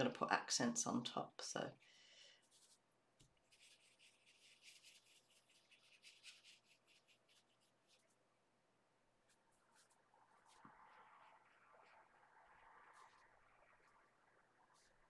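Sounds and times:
paintbrush scratching on paper: 0:02.4 - 0:08.2, 0:09.2 - 0:12.0.

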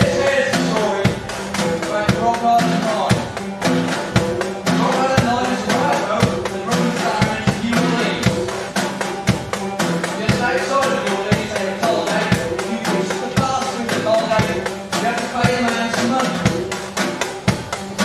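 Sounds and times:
acoustic skiffle band: 0:00.0 - 0:18.0
double bass: 0:00.0 - 0:18.0
snare drum with sticks: 0:00.0 - 0:18.0.

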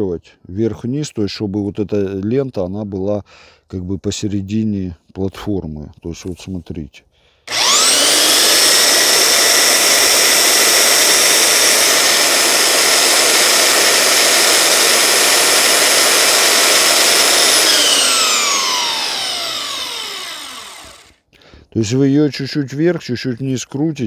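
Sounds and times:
belt sander motor whine: 0:07.5 - 0:21.2.

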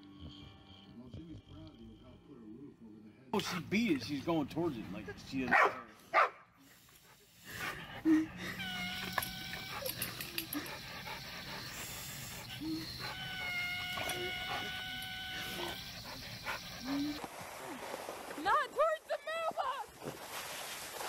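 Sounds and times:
hose water spraying: 0:06.6 - 0:21.0
dog whining: 0:08.4 - 0:17.2.

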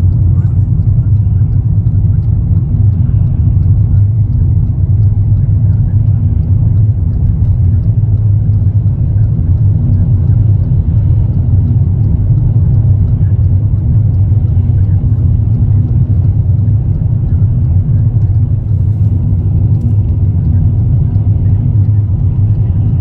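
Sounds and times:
car cabin road noise: 0:00.0 - 0:23.0.

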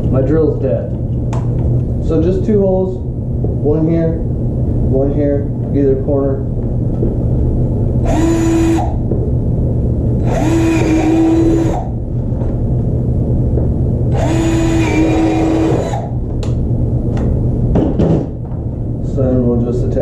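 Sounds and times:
steady low hum: 0:00.0 - 0:20.0
cordless drill boring plastic: 0:08.0 - 0:09.0, 0:10.2 - 0:11.9, 0:14.1 - 0:16.2.

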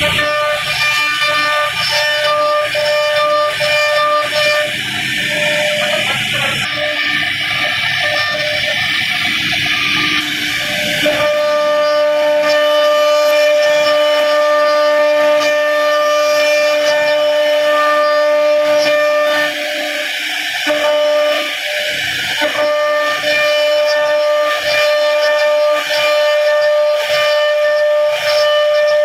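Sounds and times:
router spindle whining: 0:00.0 - 0:29.0.

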